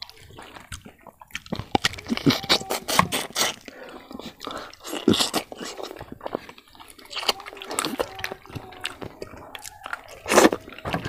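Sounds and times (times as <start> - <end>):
close chewing with wet smacks: 0.0 - 11.0
fingers kneading rice in bowl: 0.0 - 11.0.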